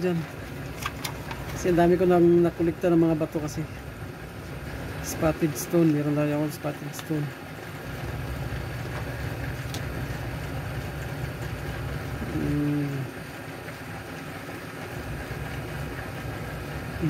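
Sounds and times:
low machine hum: 0.0s - 17.0s
person humming: 12.2s - 13.2s.

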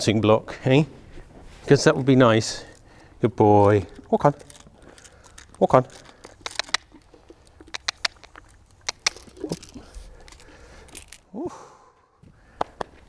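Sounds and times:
tack clinking: 1.8s - 11.3s.

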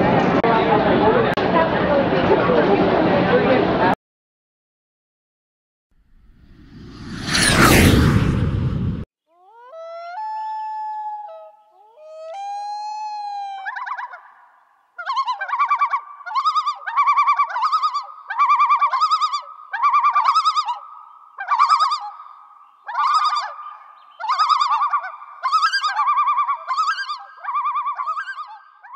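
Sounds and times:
warbling bird-like whistling call: 15.0s - 28.9s.

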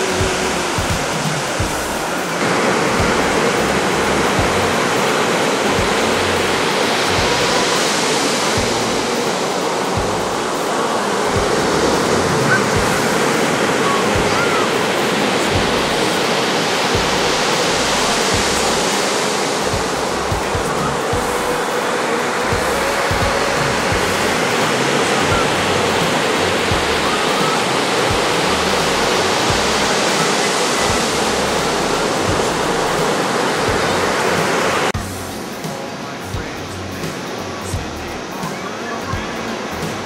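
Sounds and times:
ocean surf breaking: 0.0s - 40.0s
low thumps: 2.8s - 4.9s, 8.5s - 9.2s, 9.9s - 10.5s, 16.9s - 18.8s, 19.6s - 21.6s, 25.2s - 27.1s.

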